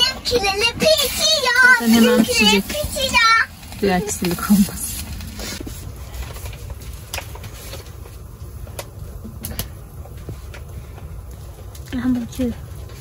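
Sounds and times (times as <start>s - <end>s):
fire crackling: 0.0s - 13.0s
fire rumbling in stove: 0.0s - 13.0s.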